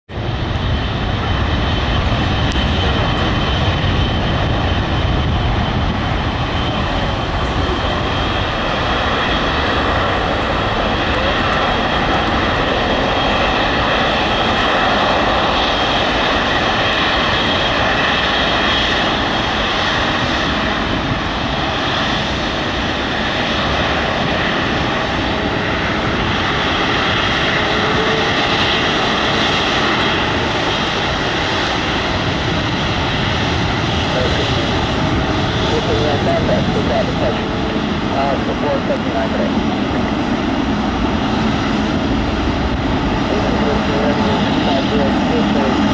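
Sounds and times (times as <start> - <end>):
jet engines at low thrust: 0.1 - 45.9.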